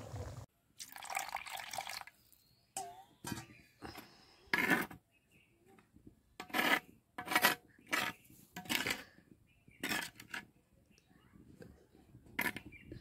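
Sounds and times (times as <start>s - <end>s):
spoon scraping clay pot: 3.2s - 5.0s, 6.4s - 10.5s, 12.2s - 13.0s.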